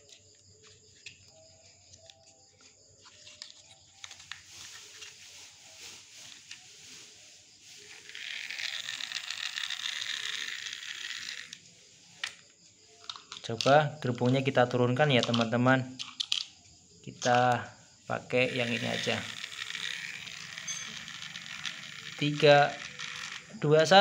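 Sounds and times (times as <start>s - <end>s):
toy motor whirring: 6.3s - 12.4s, 18.2s - 24.0s
plastic toy handling clicks: 13.0s - 14.4s, 15.2s - 16.5s, 18.5s - 23.5s.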